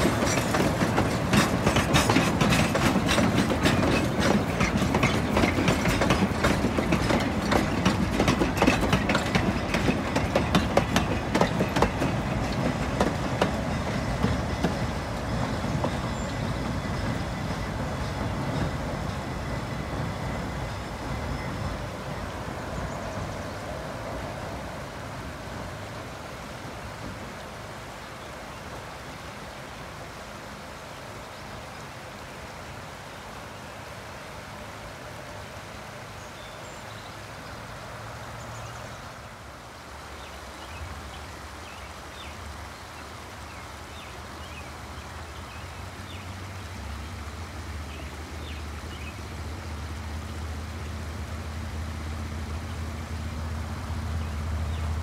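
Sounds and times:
train wheels clicking over rail joints: 0.0s - 22.2s.

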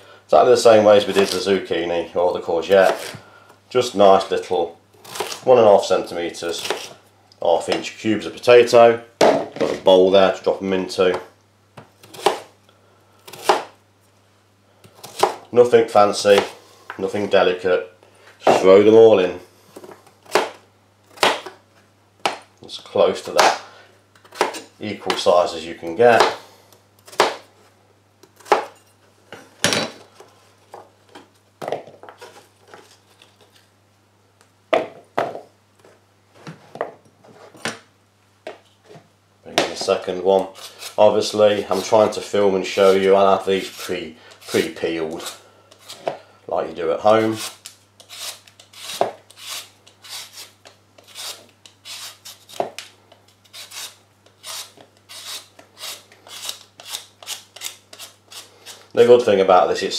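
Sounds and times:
vegetable peeler scraping potato: 0.9s - 1.5s, 5.0s - 5.5s, 6.4s - 7.0s, 40.4s - 46.1s, 47.1s - 52.6s, 53.4s - 58.9s
knife chopping on plastic board: 27.1s - 27.5s.

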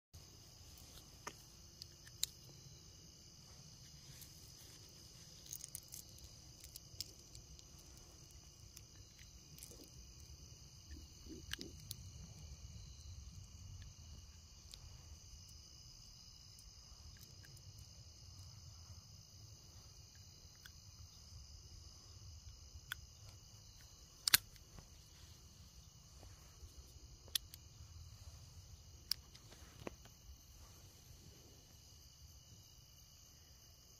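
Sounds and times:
crickets chirring: 0.2s - 33.9s
small metallic clicks: 0.7s - 2.5s, 4.8s - 12.4s, 22.8s - 24.9s, 27.2s - 27.6s, 29.0s - 30.1s.

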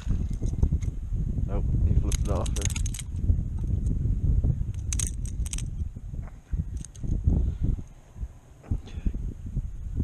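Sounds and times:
microphone handling noise: 0.0s - 8.0s
wind rumble on microphone: 0.0s - 10.0s
metallic clicks of fishing tackle: 2.0s - 4.0s, 4.7s - 5.8s, 6.7s - 7.2s.

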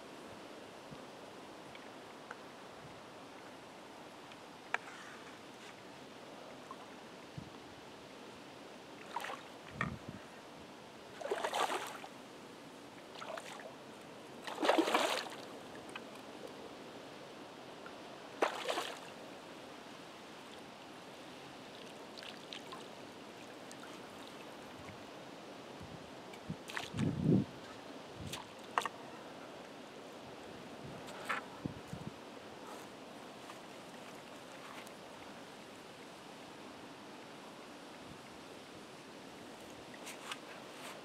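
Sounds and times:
water splashing: 11.2s - 12.1s, 14.4s - 15.5s, 18.4s - 19.1s.

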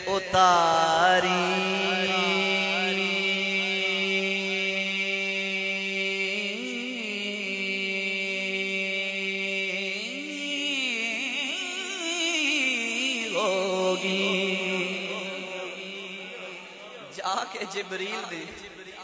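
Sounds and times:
man singing melismatic melody: 0.0s - 8.4s, 9.7s - 18.5s.

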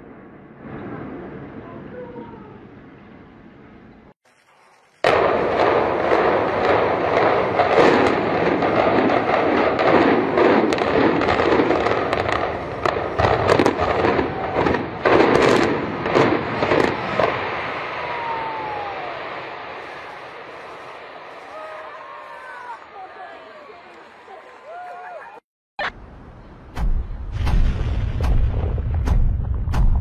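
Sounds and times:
demolition blast: 0.0s - 2.0s, 5.0s - 21.4s, 26.6s - 30.0s
sharp cracks and bangs: 4.2s - 21.6s, 26.7s - 30.0s
collapsing structure din: 26.7s - 30.0s.

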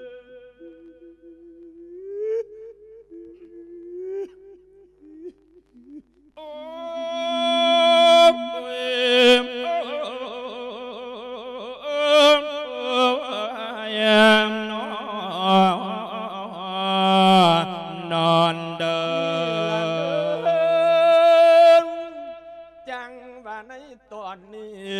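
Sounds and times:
monk chanting into a microphone: 6.4s - 24.9s.

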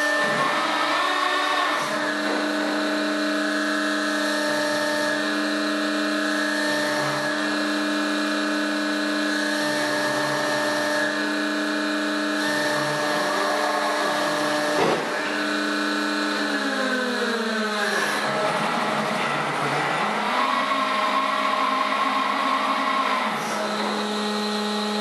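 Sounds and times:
winch motor whining: 0.0s - 25.0s.

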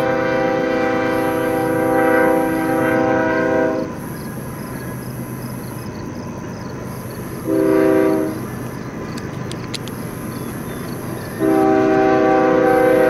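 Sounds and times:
locomotive air horn blasts: 0.0s - 4.0s, 7.4s - 8.5s, 11.4s - 13.0s
train rumble: 0.0s - 13.0s.

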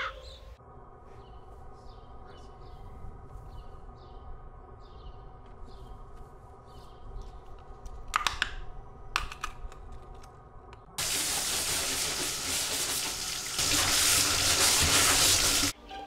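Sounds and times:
tap water rushing into bathtub: 11.0s - 15.7s.

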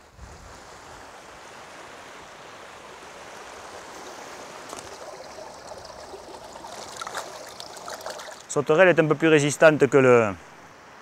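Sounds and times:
stream running over stones: 1.6s - 9.9s.

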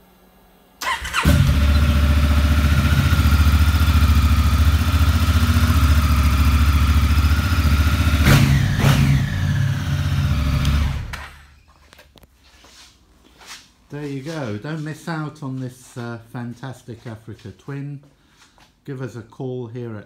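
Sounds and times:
motorcycle engine idling: 0.8s - 11.1s.

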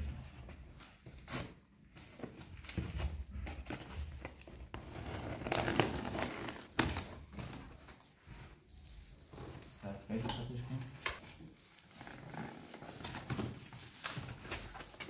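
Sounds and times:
cardboard and plastic tearing: 4.8s - 8.0s, 11.2s - 15.0s.

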